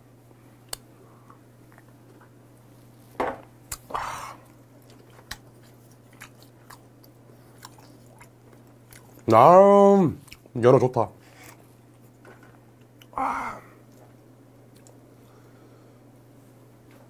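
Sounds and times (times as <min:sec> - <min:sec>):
low steady hum: 0:00.0 - 0:17.0
person chewing: 0:03.7 - 0:09.3, 0:10.2 - 0:10.5, 0:13.8 - 0:15.0.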